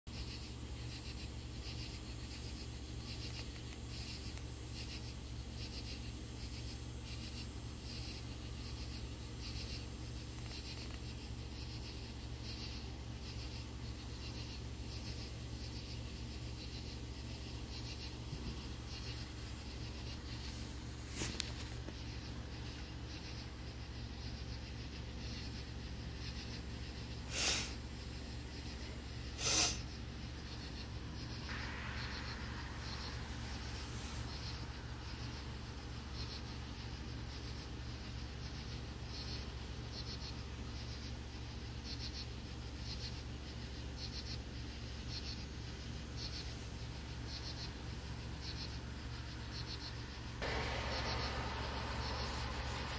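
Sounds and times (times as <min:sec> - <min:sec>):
constant low hum: 0:00.1 - 0:52.9
night insects pulsing calls: 0:00.1 - 0:52.9
short bursts of noise: 0:27.2 - 0:27.9, 0:29.2 - 0:30.1.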